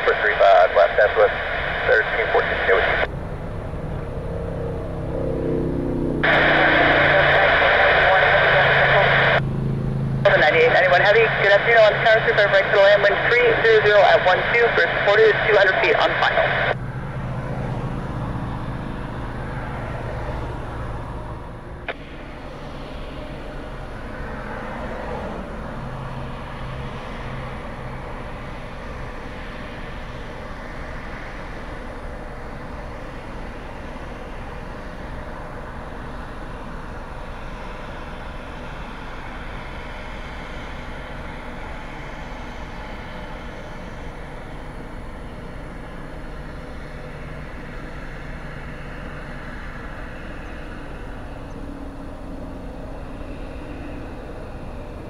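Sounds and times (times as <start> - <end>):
faint high whine falling in pitch: 0.0 - 17.3
jet engines running: 0.0 - 55.0.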